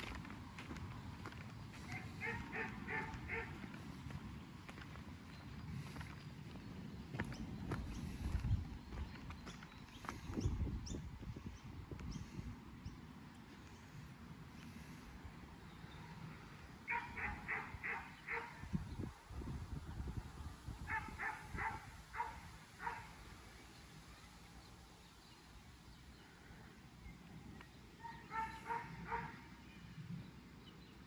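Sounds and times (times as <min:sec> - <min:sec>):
dog barking: 0:01.9 - 0:03.6, 0:16.9 - 0:18.6, 0:20.9 - 0:23.1, 0:28.0 - 0:29.4.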